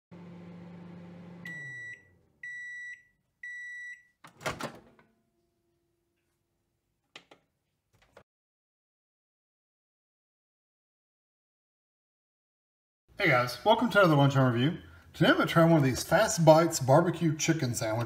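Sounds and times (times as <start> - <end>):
microwave oven humming: 0.1 - 2.8
microwave beeps: 1.1 - 4.2.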